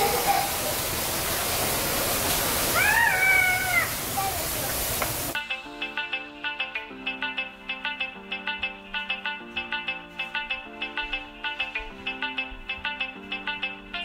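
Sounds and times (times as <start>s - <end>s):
waterfall rushing: 0.0s - 5.4s
child calling out: 2.7s - 4.7s
background music with plucked guitar: 5.4s - 14.0s.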